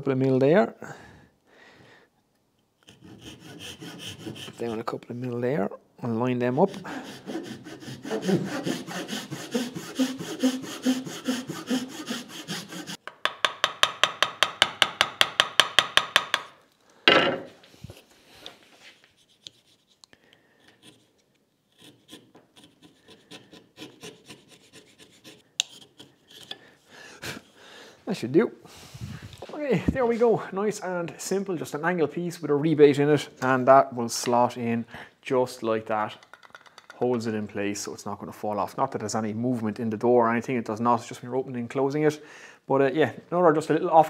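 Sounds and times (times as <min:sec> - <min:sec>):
hand saw cutting wood: 0:02.8 - 0:04.9, 0:06.5 - 0:13.0, 0:21.7 - 0:26.6
chisel scraping wood: 0:02.8 - 0:05.0, 0:06.5 - 0:13.4, 0:18.9 - 0:26.6.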